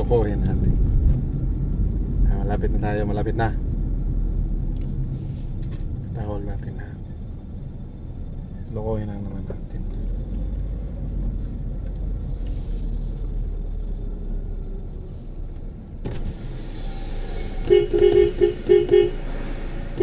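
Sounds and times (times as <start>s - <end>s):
car cabin road rumble: 0.0s - 20.0s
car horn short beeps: 17.4s - 19.2s.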